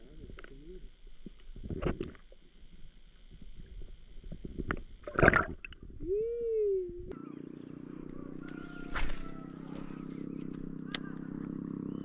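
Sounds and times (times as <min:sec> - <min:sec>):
water splashing and sloshing: 0:04.9 - 0:05.8
short rising and falling hum: 0:05.0 - 0:12.0.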